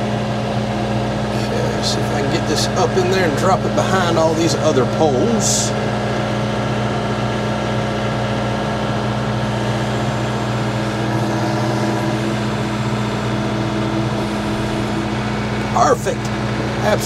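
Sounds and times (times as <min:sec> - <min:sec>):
tractor diesel engine running: 0:00.0 - 0:17.0
higher steady tone: 0:09.4 - 0:16.8.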